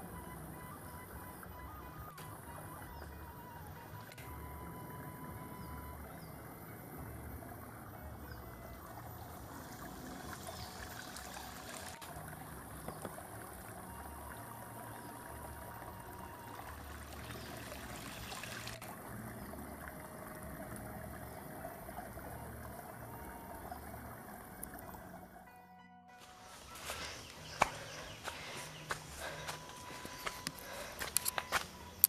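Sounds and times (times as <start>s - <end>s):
stream trickling over rocks: 0.0s - 25.5s, 26.2s - 32.0s.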